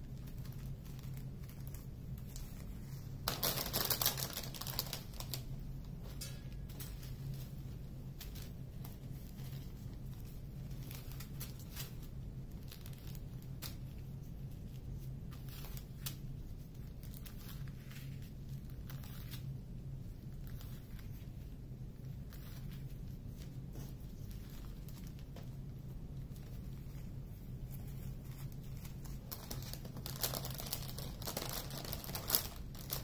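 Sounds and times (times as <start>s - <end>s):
plastic bags crinkling: 0.0s - 14.1s, 23.8s - 33.0s
steady low hum: 0.0s - 33.0s.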